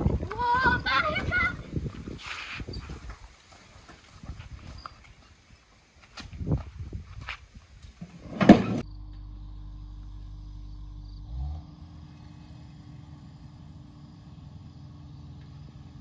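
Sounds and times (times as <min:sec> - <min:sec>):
steady low hum: 0:08.6 - 0:16.0.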